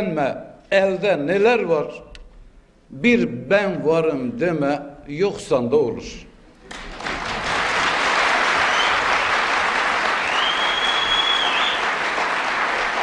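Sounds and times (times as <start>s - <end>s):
audience applauding: 6.7s - 13.0s
person whistling in crowd: 8.7s - 9.3s, 10.2s - 11.9s.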